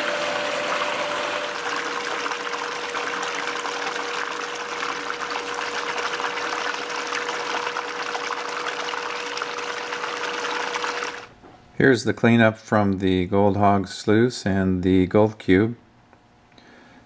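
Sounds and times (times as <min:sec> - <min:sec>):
water running through sluice: 0:00.0 - 0:11.3.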